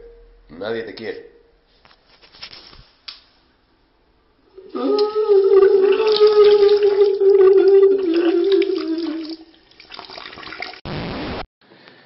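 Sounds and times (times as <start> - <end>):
running water: 4.7 - 10.8.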